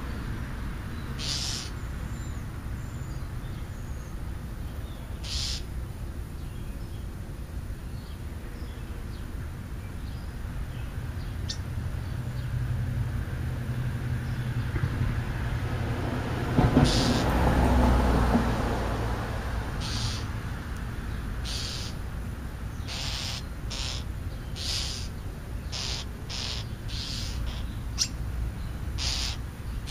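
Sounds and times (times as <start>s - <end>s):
harsh bird calls: 0.9s - 7.1s, 8.0s - 12.8s, 16.6s - 17.7s, 19.6s - 29.9s
low steady rumble: 2.1s - 16.5s.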